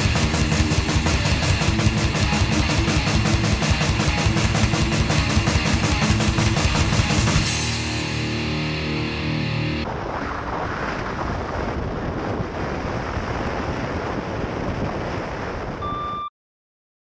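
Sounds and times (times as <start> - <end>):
heavy metal music: 0.0 - 9.9
wind buffeting microphone: 9.8 - 15.8
steady beep: 15.8 - 16.3.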